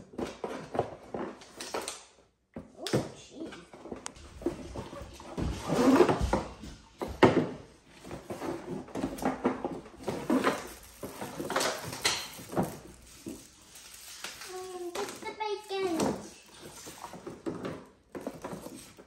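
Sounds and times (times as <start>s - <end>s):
cardboard rustling: 7.9s - 19.0s
toy items knocking and clicking: 9.0s - 19.0s.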